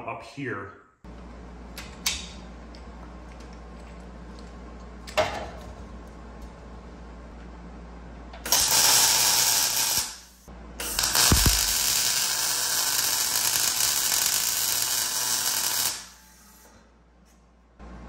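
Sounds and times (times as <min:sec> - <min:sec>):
welder arc crackling and buzzing: 0:08.3 - 0:16.8.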